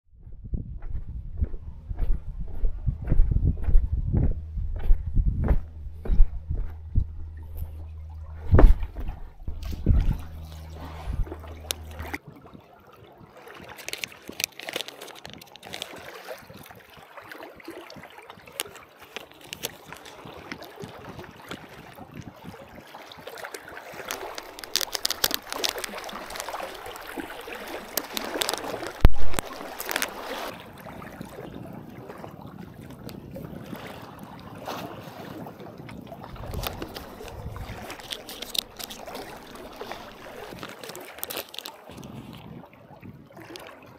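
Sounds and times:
loud dull thump: 0.5 - 12.2
seawater sloshing and gurgling: 0.5 - 43.9.

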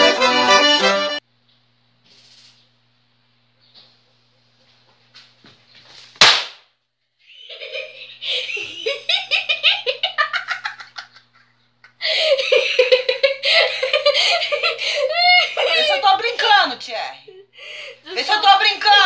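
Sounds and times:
loud sharp smack: 6.2 - 6.7
person laughing: 7.2 - 16.0.

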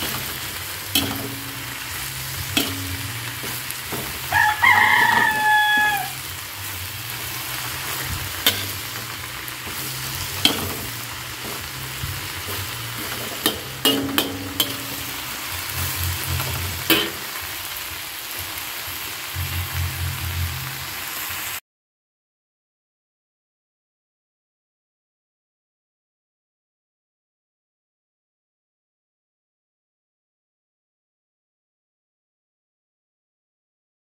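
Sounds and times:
metal spatula scraping pan: 0.0 - 17.4
vegetables sizzling in wok: 0.0 - 21.6
loud pitched call: 4.3 - 6.3.

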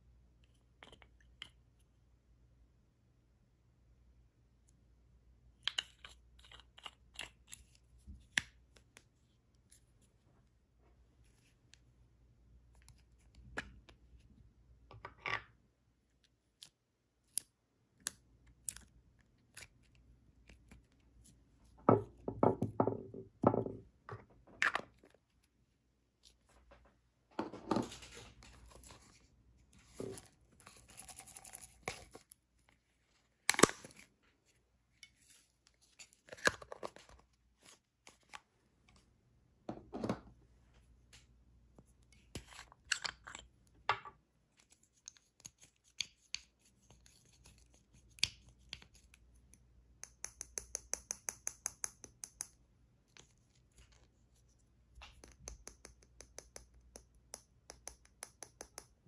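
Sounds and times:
plastic jars clicking and tapping: 55.0 - 59.0.

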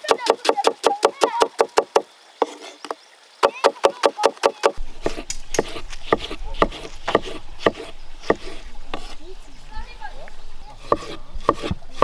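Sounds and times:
knife chopping on cutting board: 3.6 - 9.2, 10.8 - 12.0.

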